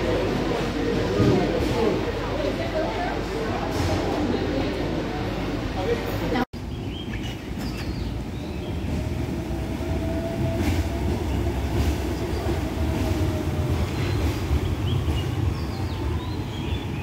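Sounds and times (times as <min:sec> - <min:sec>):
tram wheels rumbling on track: 0:00.0 - 0:17.0.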